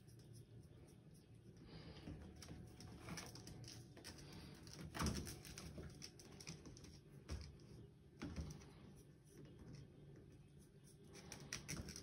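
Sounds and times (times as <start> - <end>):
ferret scuffling and scratching: 0.0 - 12.0.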